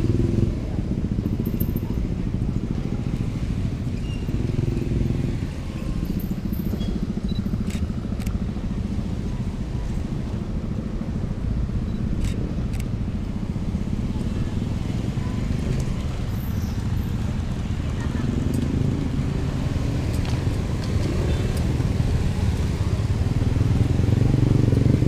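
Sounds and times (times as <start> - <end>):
motorcycles idling and passing: 0.0 - 25.0.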